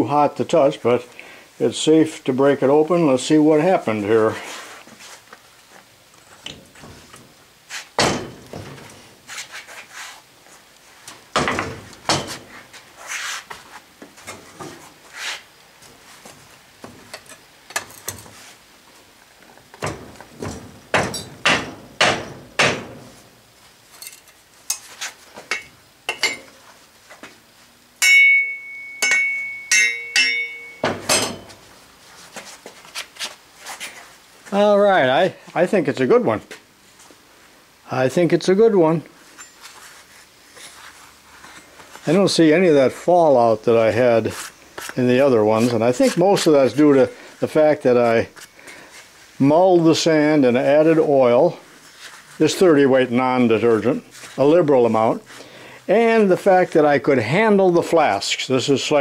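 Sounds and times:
high metallic ringing: 21.1s - 21.5s, 25.5s - 26.6s, 28.0s - 31.7s, 39.3s - 39.8s
tools knocking and scraping sand: 23.9s - 26.6s, 28.0s - 31.6s.

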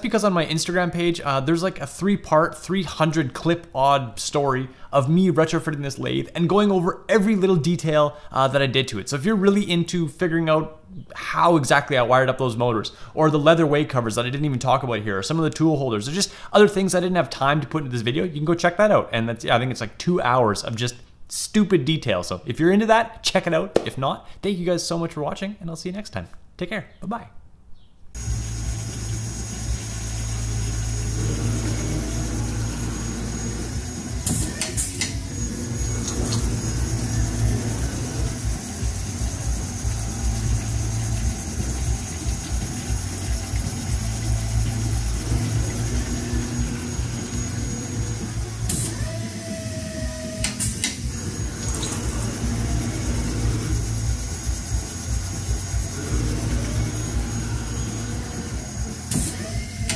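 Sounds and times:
faint high whine: 28.2s - 49.4s
coolant hiss: 28.2s - 59.9s
lathe machine hum: 28.2s - 59.9s.

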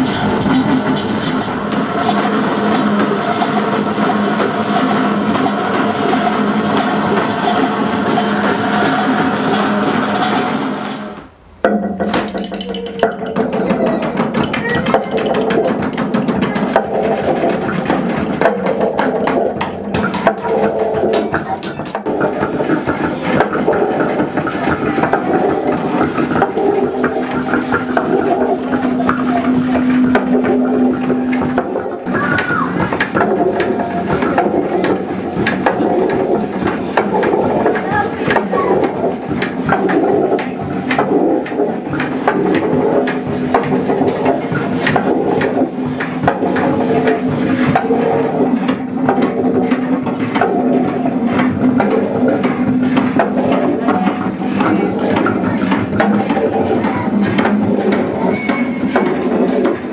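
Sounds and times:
steady hum: 0.0s - 59.9s
hand-drum taps: 11.6s - 23.8s
knocks and clicks on objects: 11.6s - 59.9s.

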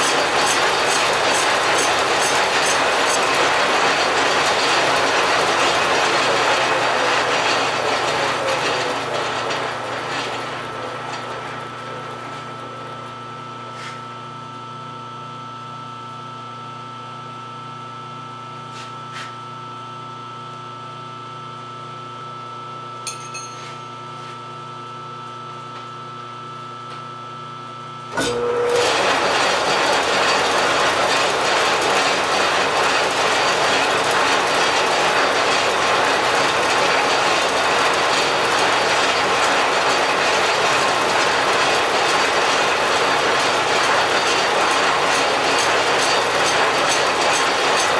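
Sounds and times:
lathe running: 0.0s - 14.0s, 28.1s - 47.9s.

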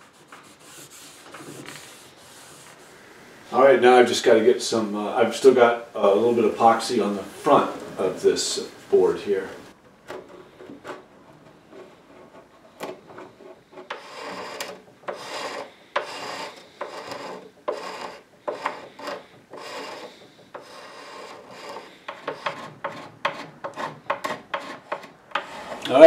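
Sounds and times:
hand tool scraping wood: 0.0s - 2.9s, 10.1s - 26.0s.

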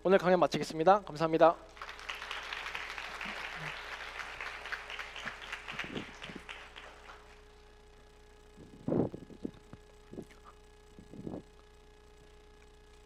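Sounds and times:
audience applauding: 1.7s - 7.5s.

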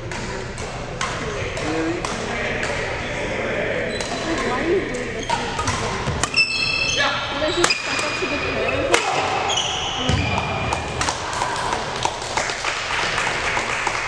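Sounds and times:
rackets hitting shuttlecock: 0.0s - 2.9s, 5.3s - 6.6s, 8.9s - 9.4s
sneaker squeaks on wooden floor: 5.0s - 10.7s.

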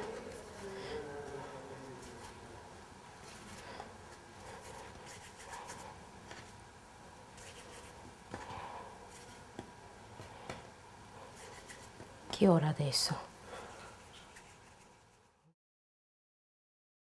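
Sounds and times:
hands rubbing dough: 0.0s - 0.7s, 1.3s - 2.4s, 3.2s - 6.6s, 7.3s - 10.6s, 11.2s - 12.4s, 13.7s - 15.4s.

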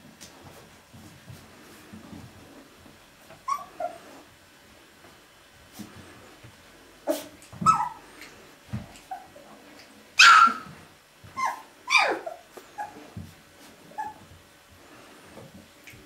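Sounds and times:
puppies yipping and squealing: 3.4s - 4.2s, 7.1s - 8.3s, 10.2s - 13.2s, 13.9s - 14.3s.

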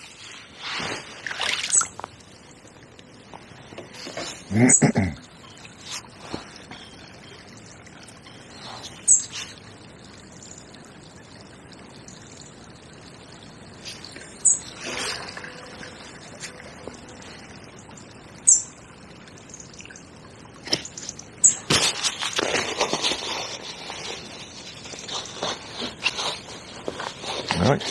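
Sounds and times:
small bird calling: 8.2s - 9.6s.

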